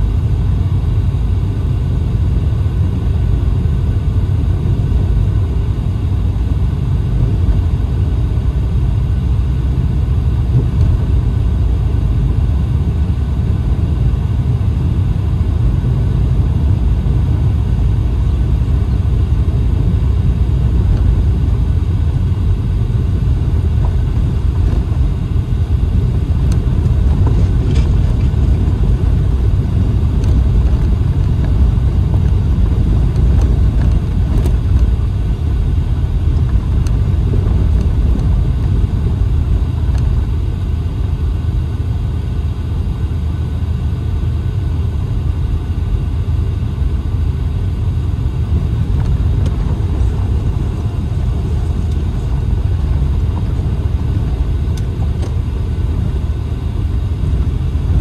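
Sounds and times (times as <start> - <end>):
car driving on gravel road: 18.2 - 40.8, 48.2 - 58.0.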